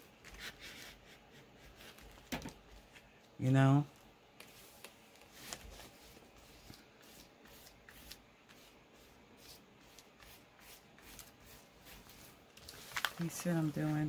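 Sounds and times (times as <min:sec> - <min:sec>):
paper rustling: 0:04.4 - 0:06.8, 0:11.0 - 0:14.0.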